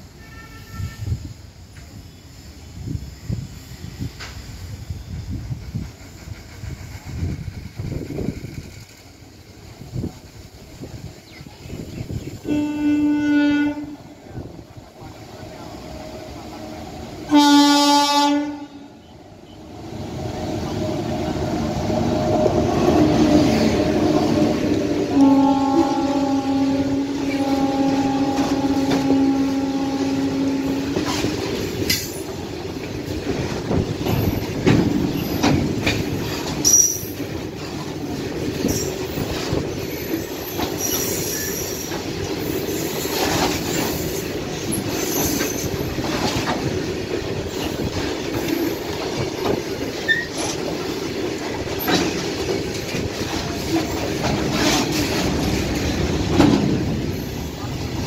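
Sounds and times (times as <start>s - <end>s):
train wheels clattering over rail joints: 4.1s - 12.3s, 20.2s - 58.0s
wheel squeal: 36.6s - 37.2s, 39.7s - 45.9s, 50.0s - 50.6s.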